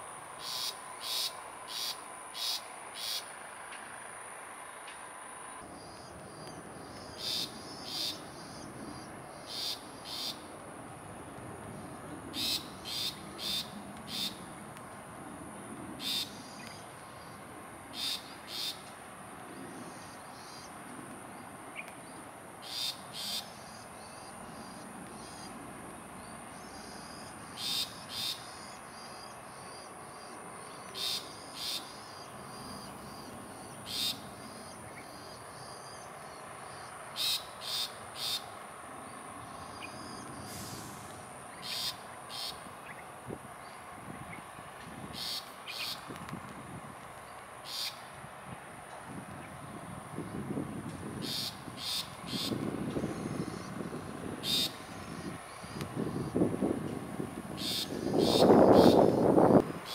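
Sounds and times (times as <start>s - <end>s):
high-pitched insect drone: 0.4s - 3.3s.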